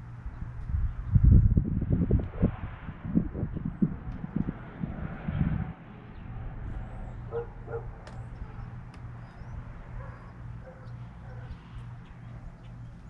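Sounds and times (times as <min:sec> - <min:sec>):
low hum: 0:00.0 - 0:13.0
dog barking: 0:07.3 - 0:08.7, 0:09.9 - 0:11.7.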